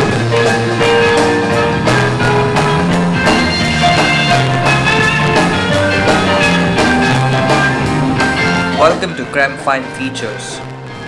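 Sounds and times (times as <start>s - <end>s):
steady drum beat: 0.0s - 9.9s
jazz on electric keyboard: 0.0s - 11.0s.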